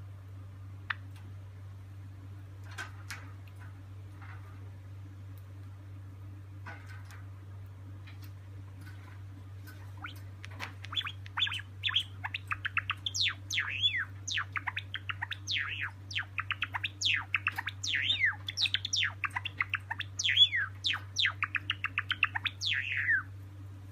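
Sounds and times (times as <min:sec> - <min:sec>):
bird soft clicks: 0:09.7 - 0:13.7
bird high falling chirps: 0:10.8 - 0:23.3.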